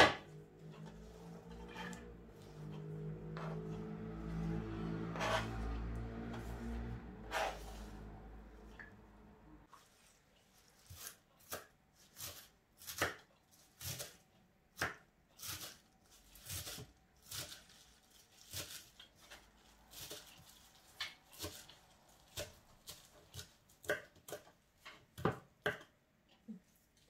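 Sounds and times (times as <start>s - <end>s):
knife chopping greens on board: 10.8s - 15.8s, 21.0s - 25.9s.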